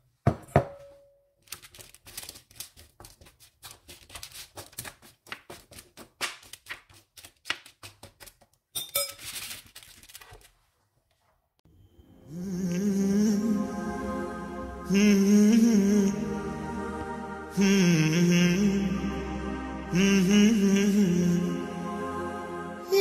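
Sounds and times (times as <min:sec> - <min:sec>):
parchment paper rustling: 0:01.4 - 0:11.4.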